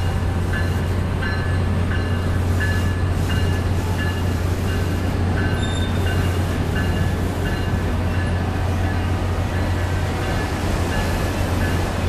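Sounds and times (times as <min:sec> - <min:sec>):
freight cars rumbling on rails: 0:00.0 - 0:12.0
train wheels squeaking: 0:00.6 - 0:08.4.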